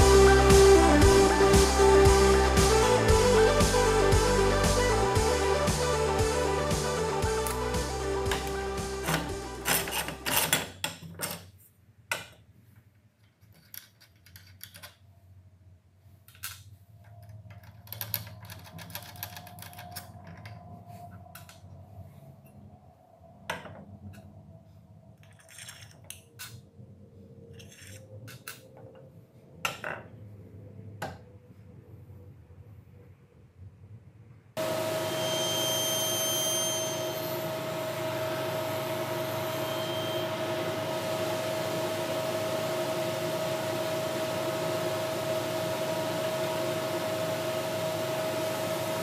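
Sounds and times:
background music: 0:00.0 - 0:10.4
small metal parts clicking and knocking: 0:13.2 - 0:15.0, 0:16.3 - 0:20.6, 0:25.2 - 0:26.6, 0:27.5 - 0:28.7.

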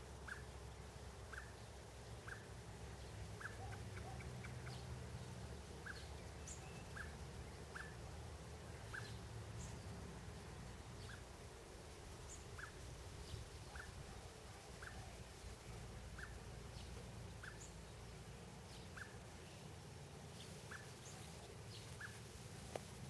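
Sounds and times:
small animal chirping: 0:00.2 - 0:00.5, 0:01.3 - 0:01.6, 0:02.2 - 0:02.5, 0:03.4 - 0:04.8, 0:05.8 - 0:08.0, 0:08.8 - 0:09.2, 0:11.0 - 0:11.3, 0:12.3 - 0:12.8, 0:13.6 - 0:15.0, 0:16.1 - 0:16.8, 0:17.4 - 0:17.8, 0:18.8 - 0:19.2, 0:20.4 - 0:22.4.

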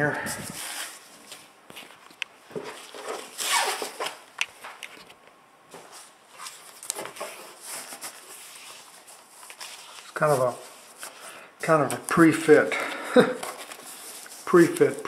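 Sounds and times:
fabric rustling and scraping: 0:05.7 - 0:11.4.

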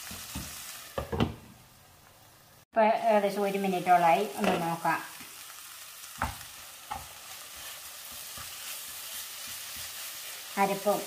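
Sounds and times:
masala sizzling in a frying pan: 0:00.0 - 0:11.0
spatula scraping a pan: 0:06.2 - 0:11.0.

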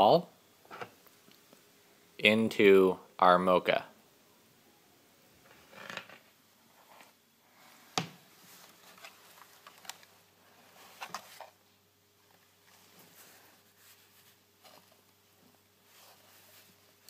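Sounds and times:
cable rustling and scraping: 0:05.4 - 0:11.6, 0:12.2 - 0:17.0.

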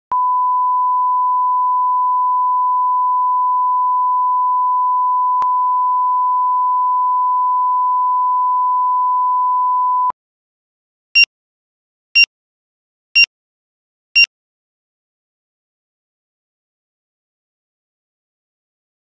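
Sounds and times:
steady test tone beep: 0:00.1 - 0:10.1.

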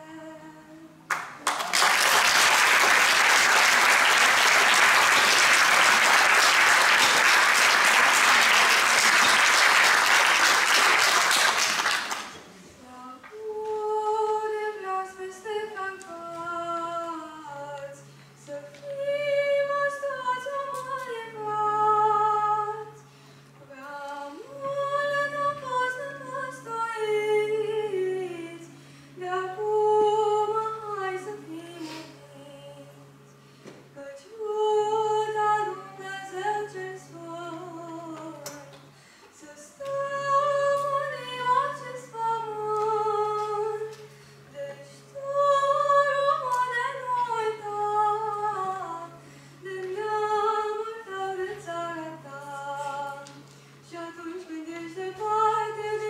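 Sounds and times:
applause: 0:01.1 - 0:12.4.

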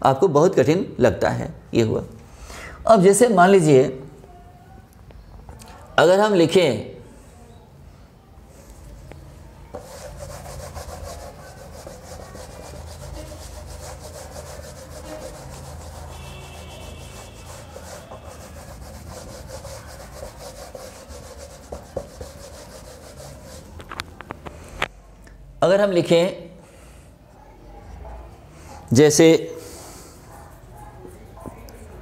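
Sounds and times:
hand rubbing paper: 0:09.8 - 0:24.7.

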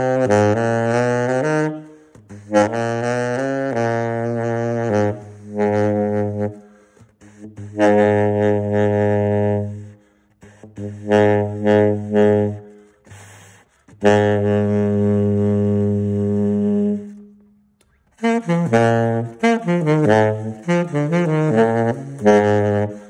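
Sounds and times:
tenor saxophone low notes: 0:00.0 - 0:23.0
player breathing: 0:01.8 - 0:02.5, 0:06.6 - 0:07.7, 0:09.8 - 0:10.9, 0:12.6 - 0:14.0.

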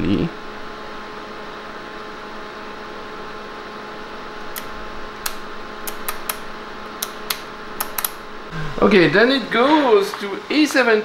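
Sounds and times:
electrical hum and hiss: 0:00.0 - 0:11.0
rotary switch clicks: 0:04.5 - 0:08.3.

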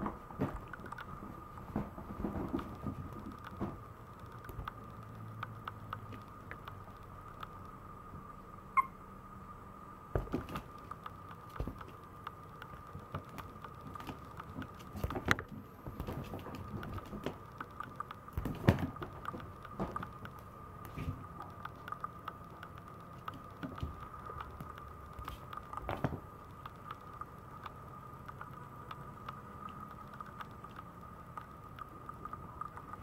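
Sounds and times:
puppy claws tapping on floor: 0:10.2 - 0:27.0.

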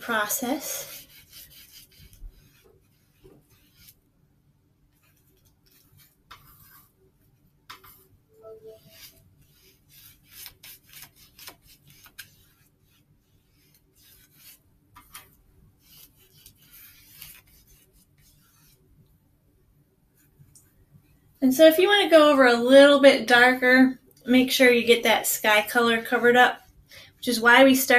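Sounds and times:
paintbrush swishing on paper: 0:00.0 - 0:04.1, 0:04.9 - 0:19.3, 0:20.1 - 0:21.4.

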